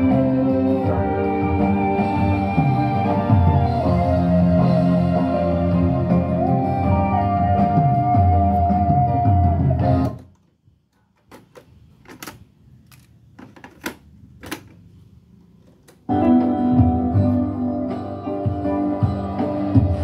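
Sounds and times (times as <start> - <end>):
music from cassette deck: 0.0 - 10.4, 15.9 - 20.0.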